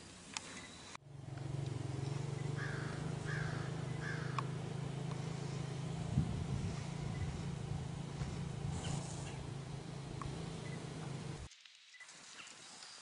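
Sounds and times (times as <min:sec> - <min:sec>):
steady low hum: 0:00.9 - 0:11.5
crow cawing: 0:02.1 - 0:05.7.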